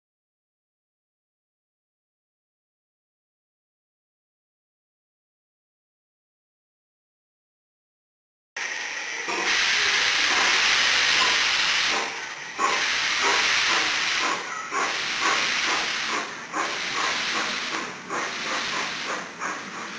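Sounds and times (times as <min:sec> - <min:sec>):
steam locomotive hissing steam: 0:08.6 - 0:19.9.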